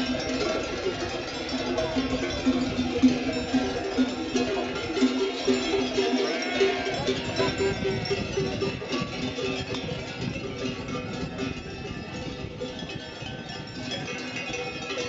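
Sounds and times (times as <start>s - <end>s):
sheep bells clanking: 0.0s - 15.0s
sheep bleating: 5.9s - 7.5s.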